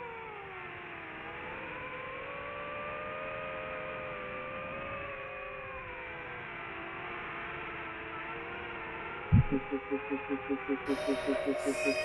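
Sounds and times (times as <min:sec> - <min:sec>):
drone propellers whining: 0:09.3 - 0:12.0.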